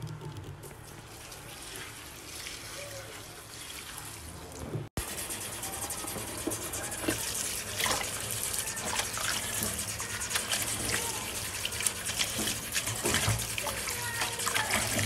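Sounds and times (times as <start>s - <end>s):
tap water running into bowl: 5.8s - 15.0s
small splashes and knocks: 11.7s - 15.0s.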